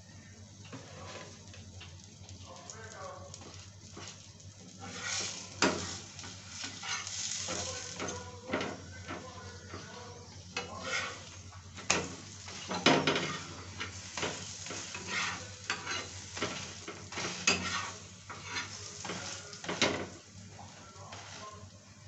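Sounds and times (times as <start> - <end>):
flatbread sizzling in oil: 0.0 - 22.0
metal spatula scraping a pan: 4.0 - 9.8, 10.6 - 20.2.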